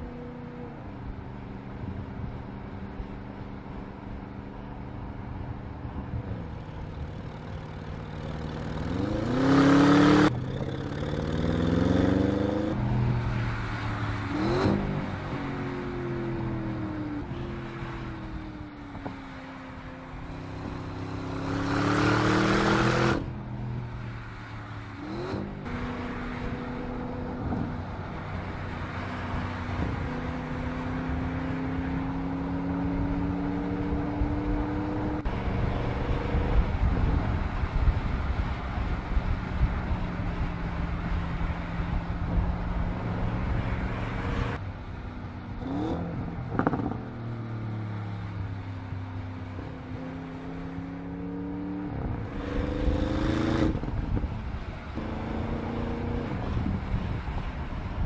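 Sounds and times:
car engine accelerating: 20.3s - 23.4s, 49.5s - 57.3s.

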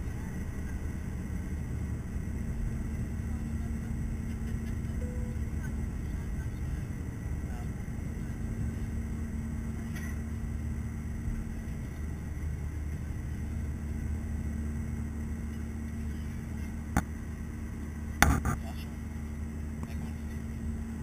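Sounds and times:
jet engines rumbling in cabin: 0.0s - 21.0s
steady hum: 0.0s - 21.0s.

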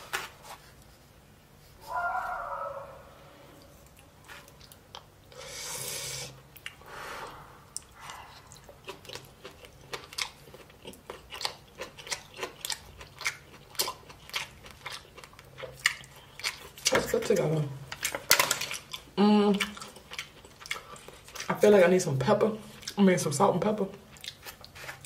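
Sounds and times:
person chewing food: 3.5s - 5.4s, 6.4s - 17.0s, 17.9s - 21.5s, 22.6s - 23.0s, 24.0s - 25.0s
breath sounds: 5.3s - 8.7s.

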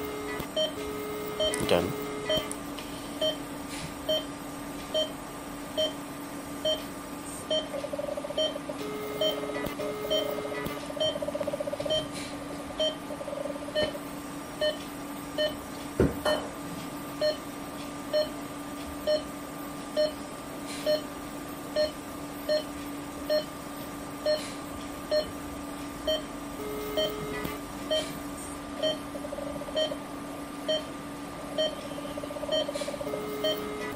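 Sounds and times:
patient monitor beeping: 0.0s - 2.6s, 3.2s - 3.4s, 4.1s - 5.2s, 5.8s - 6.0s, 6.6s - 6.9s, 7.5s - 12.2s, 12.8s - 13.1s, 14.6s - 15.6s, 17.2s - 17.5s, 18.1s - 18.4s, 19.0s - 19.3s, 20.0s - 20.2s, 20.9s - 21.1s, 21.8s - 23.6s, 25.1s - 25.4s, 26.0s - 28.2s, 28.8s - 29.1s, 29.7s - 30.0s, 30.6s - 33.9s
electrical hum: 0.0s - 33.9s.

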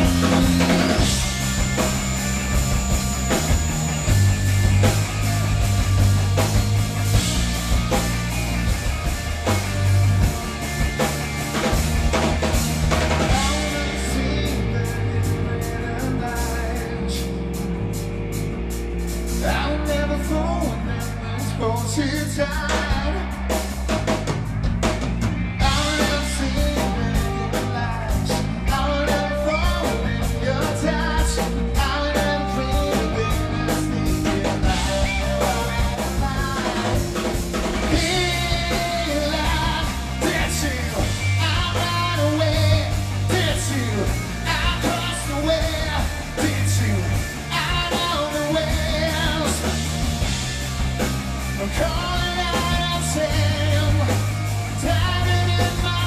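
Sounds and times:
bass guitar: 0.0s - 56.0s
drum kit: 0.0s - 56.0s
electric guitar: 0.0s - 56.0s
man singing: 13.2s - 17.7s, 19.3s - 23.5s, 25.6s - 49.9s, 51.6s - 56.0s.

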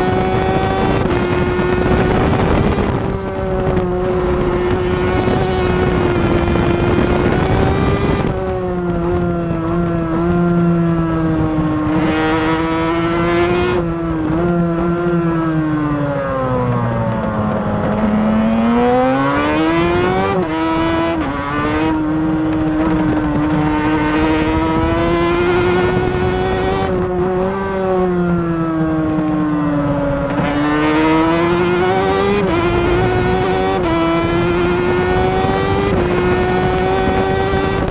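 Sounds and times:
racing motorcycle engine: 0.0s - 37.9s.

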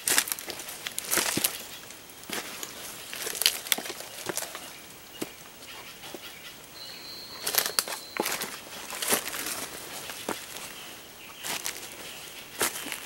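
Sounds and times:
brushing through undergrowth: 0.0s - 13.0s
footsteps crunching dry leaves: 0.0s - 13.0s
thin high tone: 6.8s - 9.2s.

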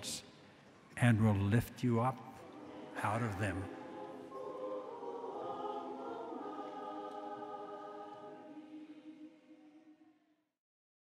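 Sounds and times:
choir singing held chord: 2.3s - 10.2s.

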